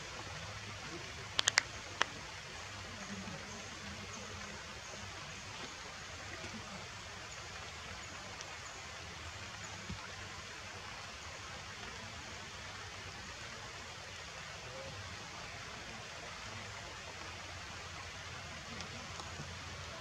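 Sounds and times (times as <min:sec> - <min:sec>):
forest ambience hiss: 0:00.0 - 0:20.0
light click: 0:01.3 - 0:02.1.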